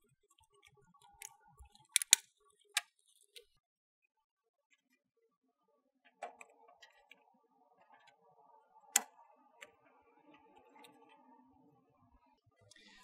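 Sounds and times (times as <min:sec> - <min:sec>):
plastic handling noise: 0:00.3 - 0:03.4
plastic clamp clicking: 0:00.6 - 0:03.4
plastic clamp snapping shut: 0:01.9 - 0:02.2.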